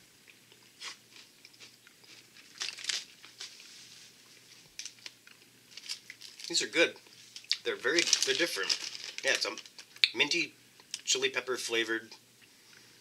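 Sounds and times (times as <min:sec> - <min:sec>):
crunching and chewing snack: 0:00.2 - 0:06.6, 0:07.3 - 0:10.1
plastic bag crinkling: 0:02.1 - 0:10.0.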